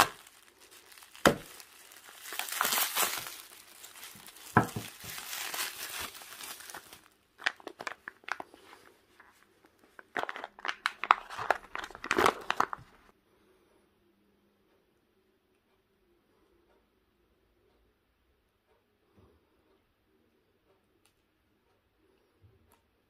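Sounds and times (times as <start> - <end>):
plastic packaging crinkling: 0.0 - 13.1.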